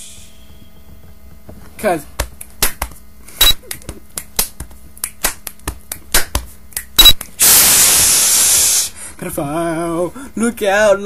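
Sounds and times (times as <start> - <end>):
loud even hiss: 7.4 - 9.2.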